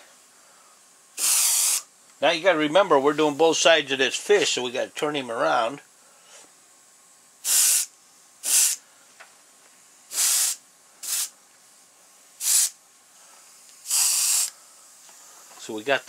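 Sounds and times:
airbrush spraying hiss: 0.0 - 1.9, 7.4 - 8.8, 9.7 - 11.4, 12.0 - 15.9.

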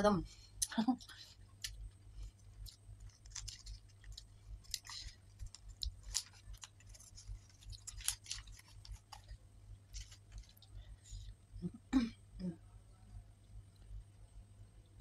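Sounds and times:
sweet wrapper crackling: 1.6 - 11.0.

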